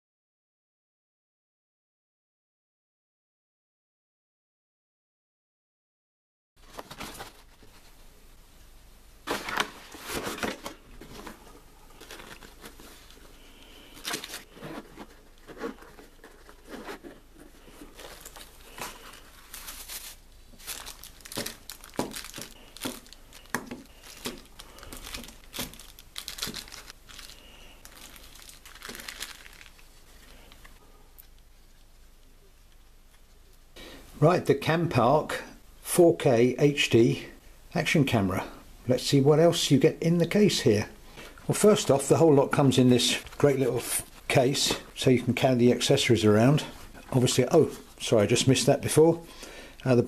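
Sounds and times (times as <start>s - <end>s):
cardboard packaging rustling: 6.6s - 8.0s, 9.2s - 31.4s
plastic bags crinkling: 9.3s - 31.3s.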